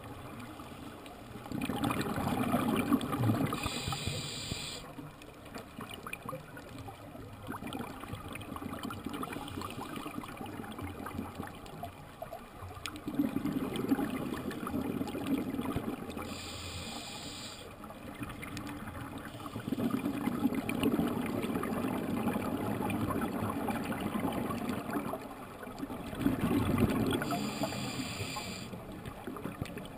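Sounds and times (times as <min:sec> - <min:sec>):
exhaled bubbles rushing: 0:01.4 - 0:03.7, 0:13.0 - 0:16.2, 0:25.9 - 0:27.4
regulator inhale hiss: 0:03.5 - 0:04.9, 0:16.2 - 0:17.8, 0:19.2 - 0:20.0, 0:27.2 - 0:28.8.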